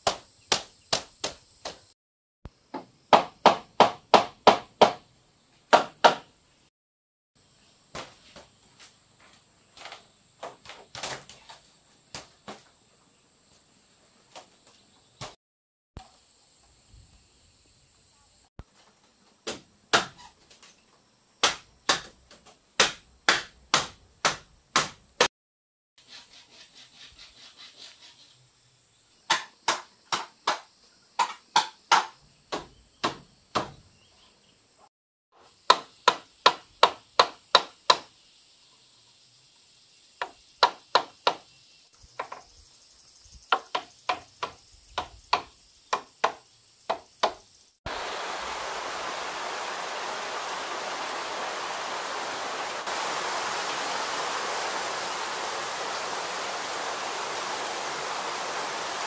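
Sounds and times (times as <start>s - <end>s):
machete striking bamboo: 19.4s - 20.2s, 21.4s - 22.2s, 22.8s - 25.0s, 29.3s - 33.7s
high insect drone: 28.0s - 59.0s.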